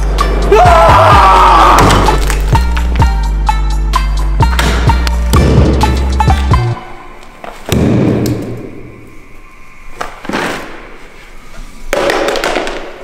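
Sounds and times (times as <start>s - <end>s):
music with heavy beat: 0.0s - 6.8s.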